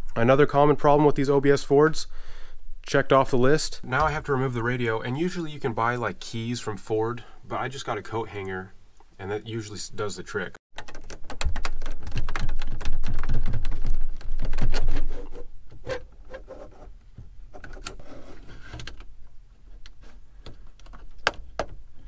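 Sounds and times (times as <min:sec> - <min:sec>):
metal case scraping: 0:17.5 - 0:19.1
wires clicking and scraping: 0:17.5 - 0:21.8.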